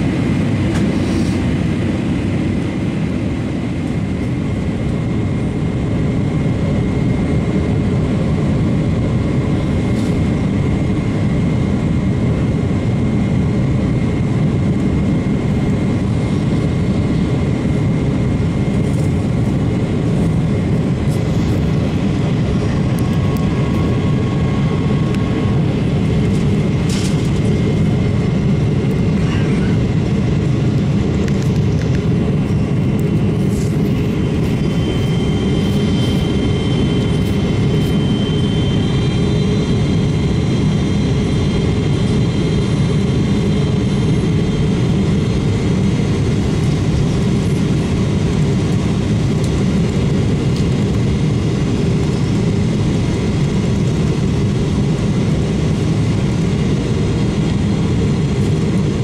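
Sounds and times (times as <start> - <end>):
airplane cabin engine noise: 0.0 - 59.0
faint high whine: 31.2 - 45.2.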